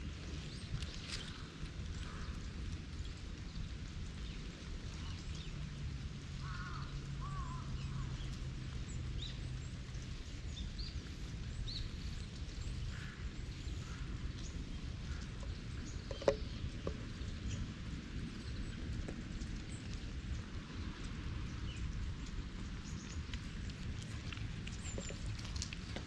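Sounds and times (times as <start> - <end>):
distant bird calls: 6.3 - 20.2.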